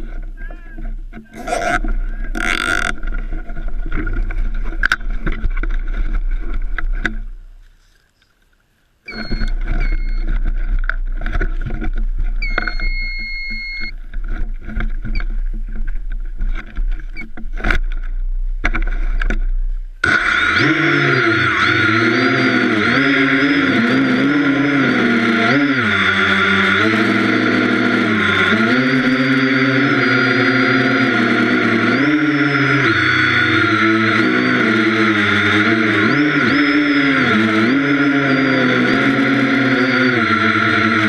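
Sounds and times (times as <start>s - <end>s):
drone propellers whining: 1.2s - 3.2s, 20.0s - 41.0s
short electronic beeps: 9.1s - 10.3s, 12.4s - 14.0s.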